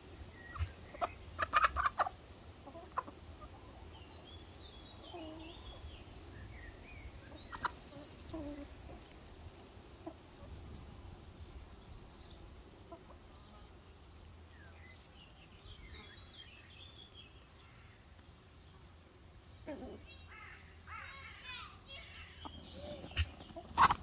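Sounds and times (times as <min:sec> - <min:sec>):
hens clucking: 0:00.0 - 0:06.1, 0:06.8 - 0:13.5, 0:19.4 - 0:21.3, 0:21.9 - 0:24.0.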